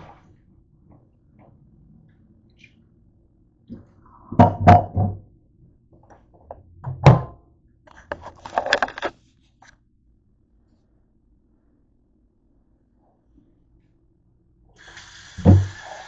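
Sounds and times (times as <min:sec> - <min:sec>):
camera handling rattle: 0:08.1 - 0:09.1.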